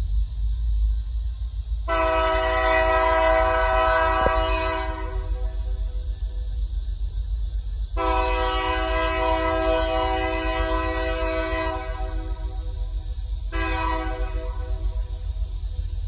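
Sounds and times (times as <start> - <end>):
low rumble of locomotive: 0.0 - 16.0
locomotive air horn blasts: 1.9 - 5.6, 8.0 - 12.6, 13.5 - 15.0.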